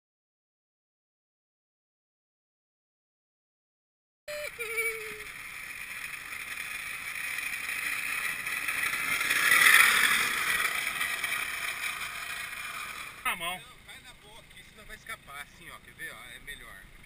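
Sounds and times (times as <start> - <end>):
plastic wheels scraping on asphalt: 5.2 - 13.6.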